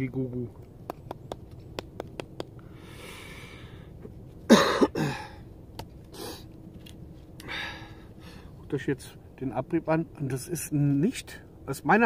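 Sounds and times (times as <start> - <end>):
man breathing out: 2.6 - 4.0, 7.4 - 8.5.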